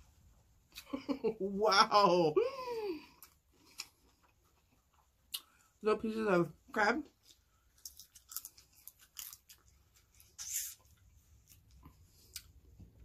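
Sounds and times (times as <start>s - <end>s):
chewing and crunching food: 3.0s - 5.8s, 7.0s - 13.0s.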